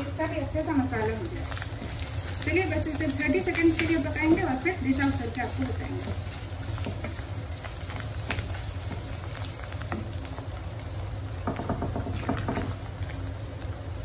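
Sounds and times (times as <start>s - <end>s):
meat frying in oil crackling: 0.0s - 14.0s
wooden spatula scraping a wok: 1.5s - 9.2s.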